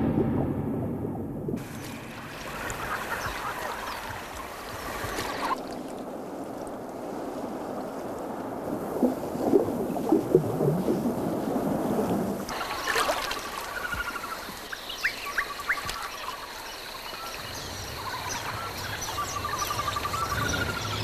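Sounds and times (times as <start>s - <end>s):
short sharp splashes: 0.0s - 6.1s
water splashing and lapping: 1.5s - 21.0s.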